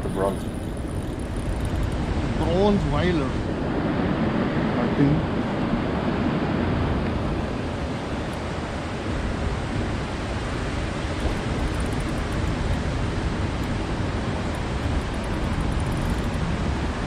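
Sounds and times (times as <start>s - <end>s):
ocean surf on rocks: 0.0s - 17.0s
wind on microphone: 0.0s - 17.0s.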